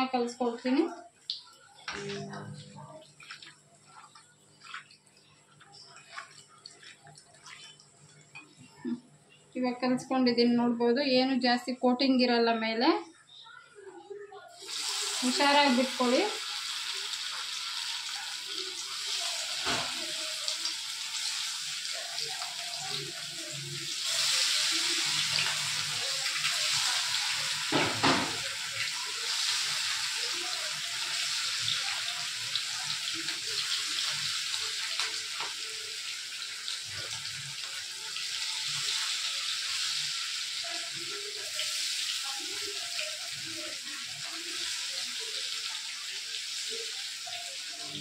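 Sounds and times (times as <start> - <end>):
chicken deep-frying in hot oil: 0.0 - 9.0, 14.5 - 48.0.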